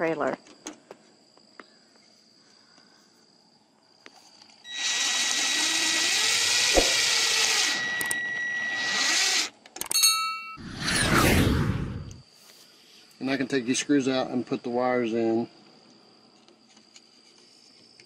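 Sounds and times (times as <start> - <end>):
cordless drill driving screw: 4.7 - 9.6.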